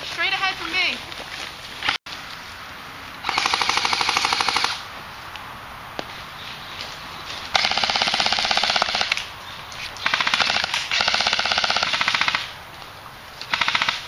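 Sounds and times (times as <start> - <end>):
airsoft rifle full auto bursts: 3.2 - 4.8.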